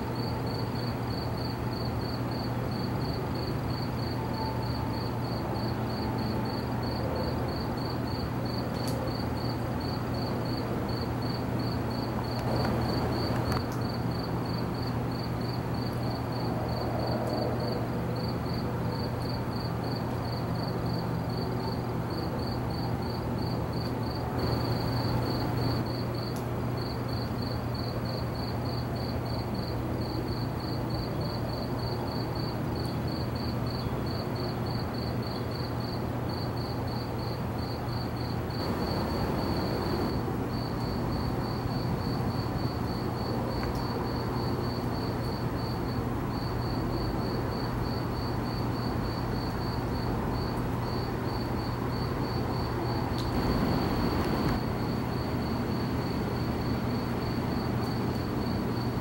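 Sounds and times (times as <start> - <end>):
cricket chirping: 0.0 - 59.0
background hiss: 24.1 - 27.6, 38.1 - 42.4, 52.3 - 55.5
low hum: 53.3 - 54.6.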